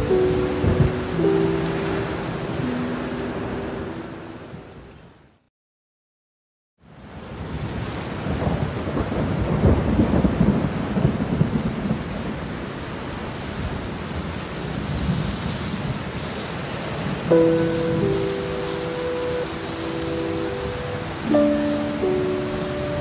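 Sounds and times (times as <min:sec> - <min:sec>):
thunder rumble: 0:00.0 - 0:02.9, 0:08.2 - 0:12.3
steady rain: 0:00.0 - 0:05.5, 0:06.8 - 0:23.0.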